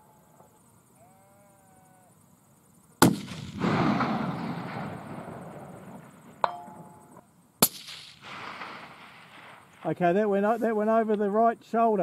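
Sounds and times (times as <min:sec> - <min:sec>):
rifle shots with echo: 0:03.0 - 0:06.4, 0:07.6 - 0:10.1.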